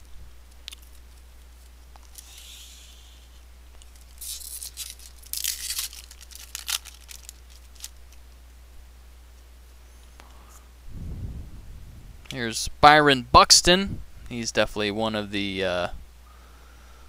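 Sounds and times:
steady low hum: 0:00.0 - 0:17.0
card pack wrapper tearing: 0:03.8 - 0:08.2.

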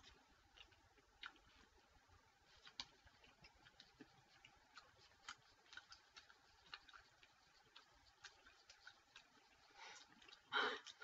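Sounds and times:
gum chewing mouth clicks: 0:02.6 - 0:11.0.

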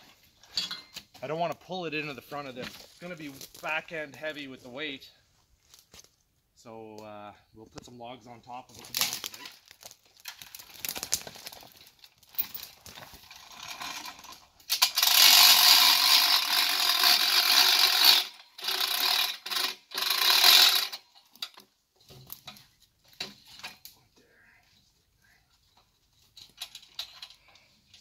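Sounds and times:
winch ratchet clicking: 0:13.6 - 0:21.6.

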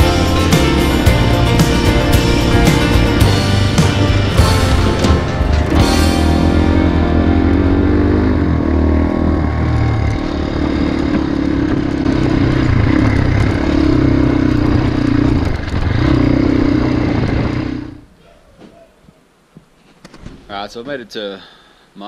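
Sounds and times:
dirt bike engine revving: 0:00.0 - 0:18.1
gravel clattering under tyres: 0:09.7 - 0:17.9.

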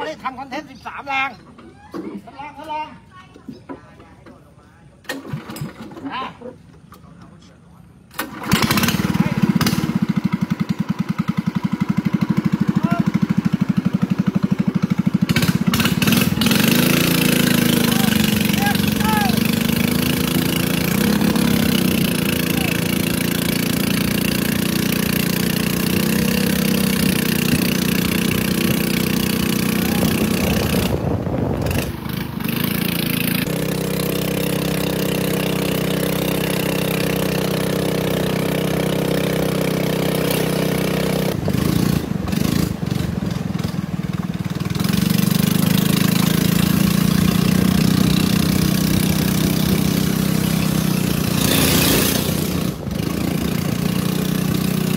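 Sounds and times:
boat engine running: 0:08.3 - 0:54.9.

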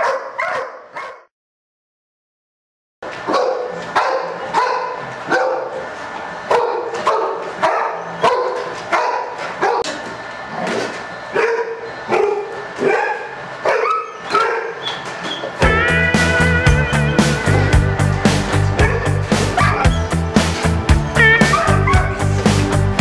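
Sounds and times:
dog barking: 0:00.0 - 0:01.3, 0:03.2 - 0:05.9, 0:06.5 - 0:10.0, 0:11.3 - 0:14.9, 0:18.8 - 0:19.9, 0:21.4 - 0:22.2.

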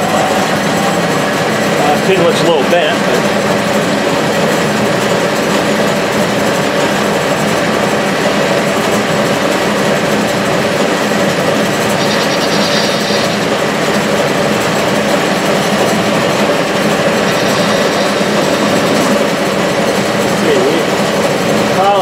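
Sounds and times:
metal lathe running: 0:00.0 - 0:22.0
brief high-pitched sound: 0:12.0 - 0:13.6.

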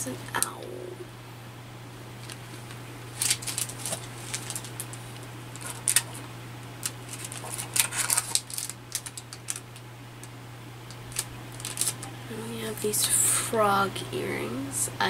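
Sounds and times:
steady low hum: 0:00.0 - 0:15.0
plastic packets crinkling: 0:02.2 - 0:12.2.

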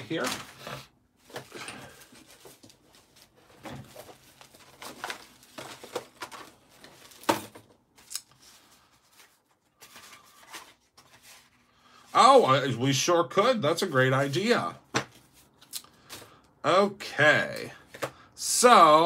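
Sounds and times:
rustling and scraping: 0:00.0 - 0:07.8, 0:08.4 - 0:11.7.

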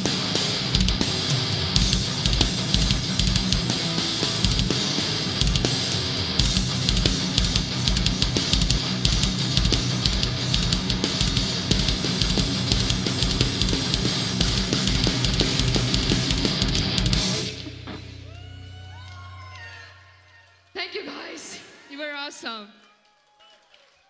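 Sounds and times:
drum kit with fast bass drum: 0:00.0 - 0:18.0
distorted electric guitars: 0:00.0 - 0:19.6.

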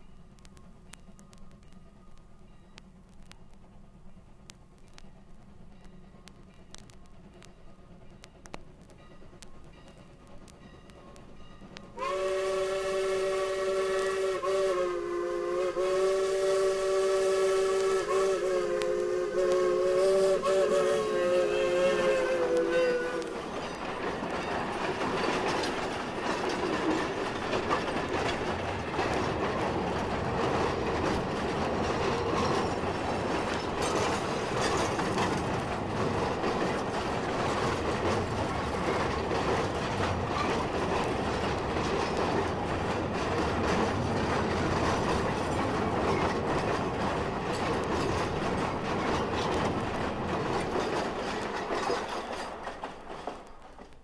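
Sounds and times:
wheels clattering on rails: 0:00.0 - 0:14.7, 0:15.4 - 0:54.0
train rumbling: 0:00.0 - 0:54.0
steam locomotive whistle: 0:11.9 - 0:23.6.

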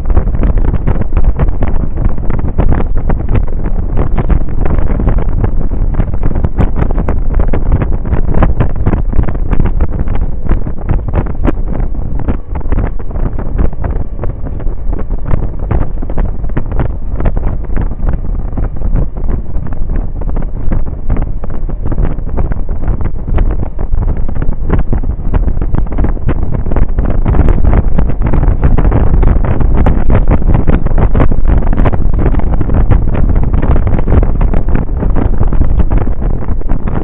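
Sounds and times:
road and engine noise: 0:00.0 - 0:37.0
wind buffeting microphone: 0:00.0 - 0:37.0.

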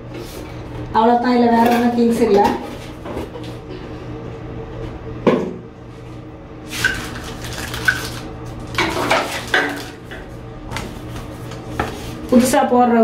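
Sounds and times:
bag and paper crinkling: 0:06.8 - 0:08.7.

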